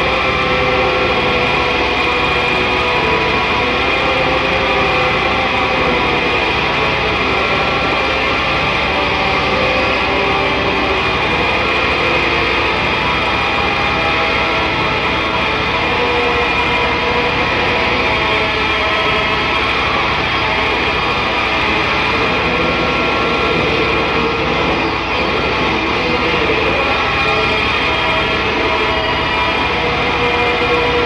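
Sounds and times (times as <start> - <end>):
distorted guitar drone: 0.0 - 31.0.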